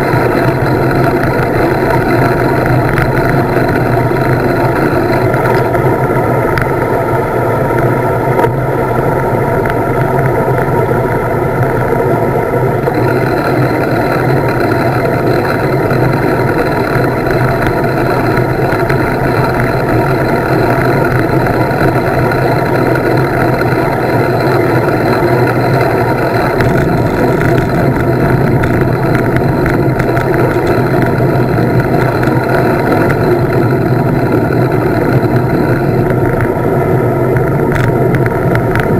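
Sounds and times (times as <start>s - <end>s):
bicycle tyre and road noise: 0.0s - 38.9s
wind buffeting microphone: 0.0s - 38.9s.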